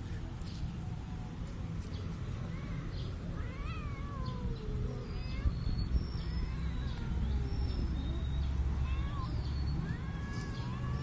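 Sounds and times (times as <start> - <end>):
cat yowling: 3.4 - 7.9.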